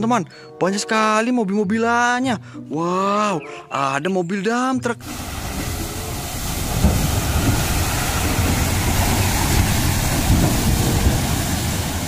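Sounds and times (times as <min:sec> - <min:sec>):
dump truck driving through mud: 0:05.0 - 0:12.0.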